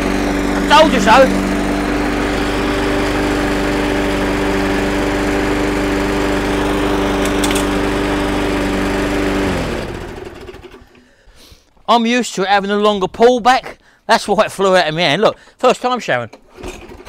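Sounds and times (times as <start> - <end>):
lawnmower engine running: 0.0 - 11.0.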